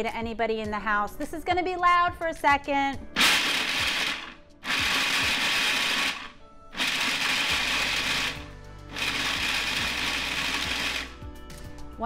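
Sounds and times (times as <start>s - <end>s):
food processor grinding whir: 3.2s - 11.2s.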